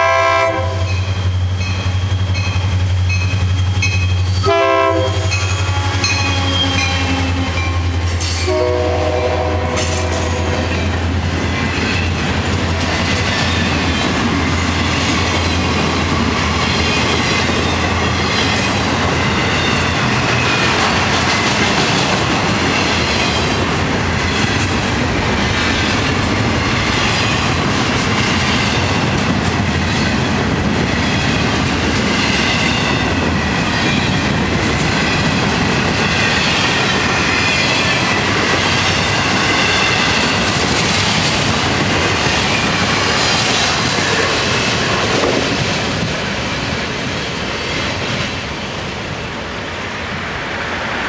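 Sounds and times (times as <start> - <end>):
steel wheels squealing on rails: 0.0 - 24.8
freight train rolling past: 0.0 - 51.0.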